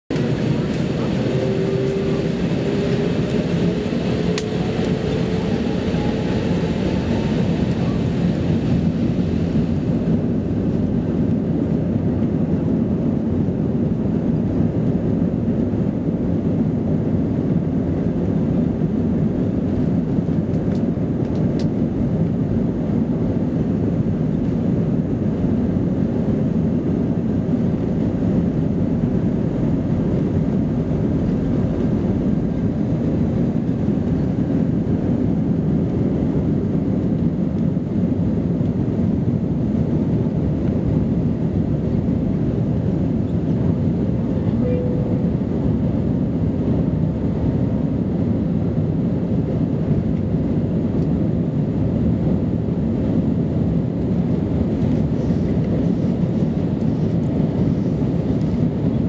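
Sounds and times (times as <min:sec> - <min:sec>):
jet engines spooling up: 0:00.1 - 0:10.4
engine and runway noise: 0:00.1 - 0:59.0.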